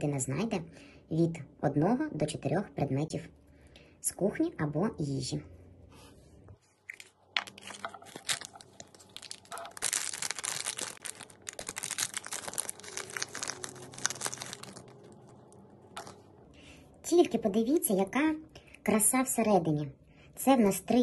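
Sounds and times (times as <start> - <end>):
foil bag crinkling and tearing: 7.4 - 15.6.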